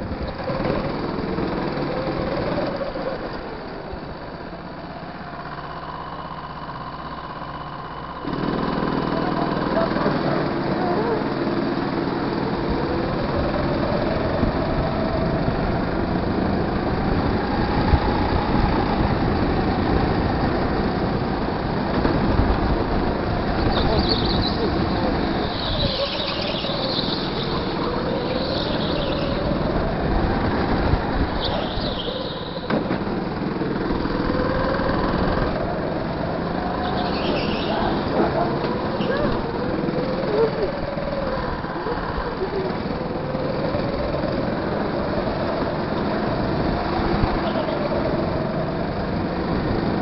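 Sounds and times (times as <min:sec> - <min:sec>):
go-kart engine revving: 0:00.0 - 0:50.0
tyre squeals: 0:23.6 - 0:29.5, 0:31.4 - 0:32.7, 0:36.7 - 0:38.2.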